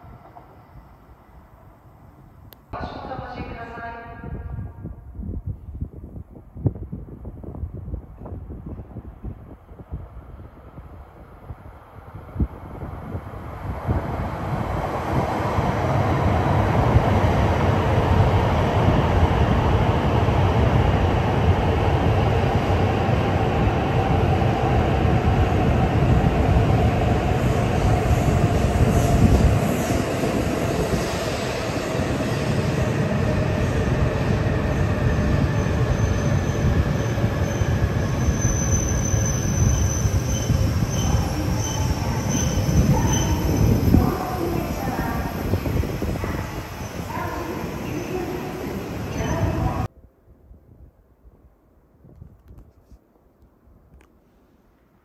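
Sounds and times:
train running noise: 0:12.4 - 0:49.9
high brake squeal: 0:37.4 - 0:43.6.

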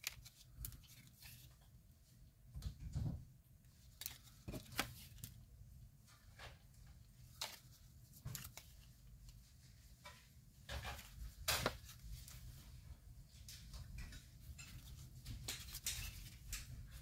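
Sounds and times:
paper cards rustling and tapping: 0:00.0 - 0:01.7, 0:03.8 - 0:05.4, 0:07.2 - 0:09.4, 0:10.7 - 0:12.4, 0:13.4 - 0:17.0.

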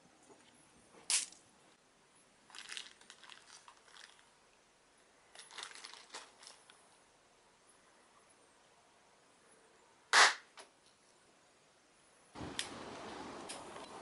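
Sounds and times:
plastic bag crinkling: 0:02.5 - 0:04.4, 0:05.3 - 0:06.8.

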